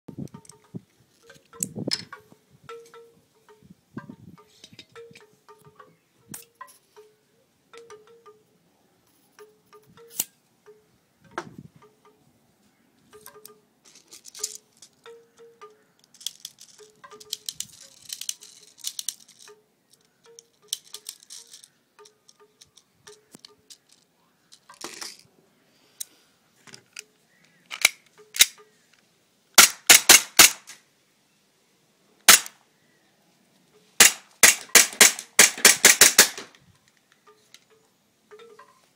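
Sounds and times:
small plastic clicks: 16.0s - 25.3s, 26.0s - 29.1s
airsoft pistol shots: 29.6s - 30.8s, 32.3s - 32.6s, 34.0s - 36.5s.

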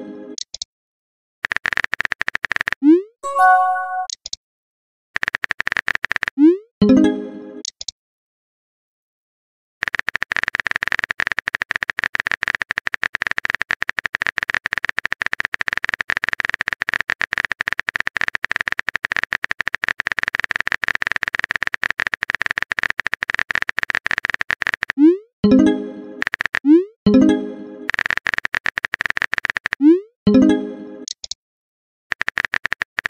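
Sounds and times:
keyboard typing clicks: 1.6s - 4.3s, 7.6s - 7.9s, 9.9s - 26.8s, 27.9s - 29.9s, 31.0s - 31.4s, 32.1s - 33.0s.

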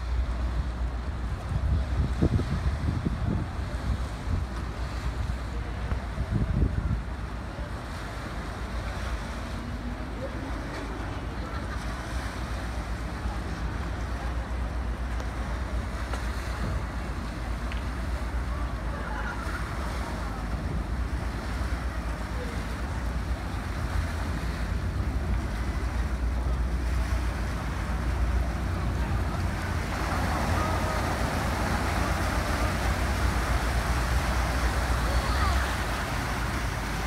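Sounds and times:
wind on microphone: 0.0s - 9.5s
ferry engines rumbling: 0.0s - 37.0s
propellers churning water: 0.0s - 37.0s.

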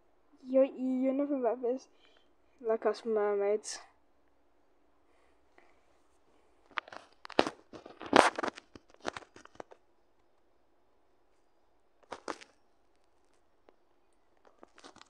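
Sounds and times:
handling rustles and taps: 6.7s - 10.5s, 12.0s - 15.0s.

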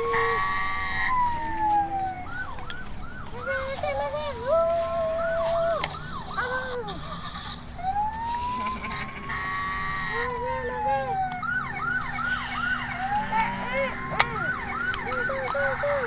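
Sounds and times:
rapid yelping siren sweeps: 0.0s - 16.0s
toy siren wailing: 0.0s - 16.0s
steady horn-like tone: 8.6s - 10.2s.

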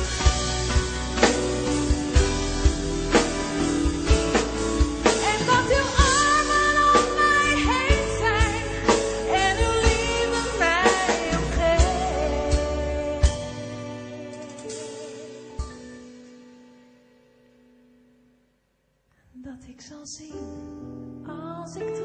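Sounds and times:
steady drum beat: 0.0s - 13.8s
gospel-pop band: 0.0s - 16.5s
woman singing with vibrato: 5.2s - 14.9s.

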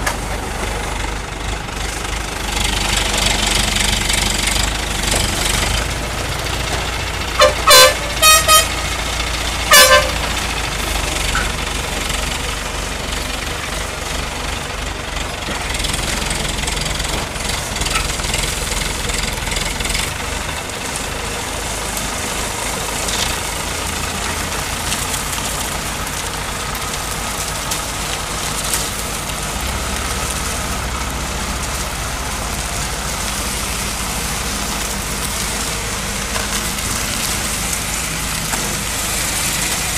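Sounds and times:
heavy truck engine running: 0.0s - 39.9s
vehicle horn toots: 7.4s - 10.4s.

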